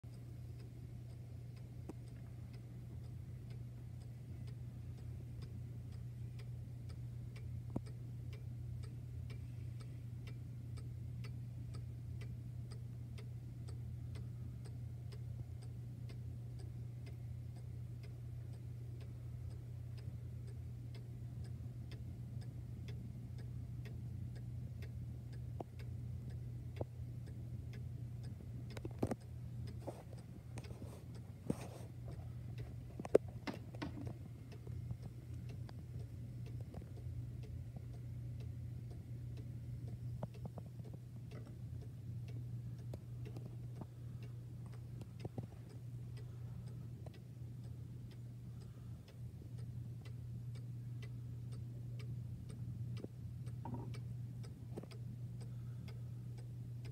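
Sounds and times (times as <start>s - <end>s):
steady low hum: 0.0s - 56.9s
clock ticking: 0.1s - 56.9s.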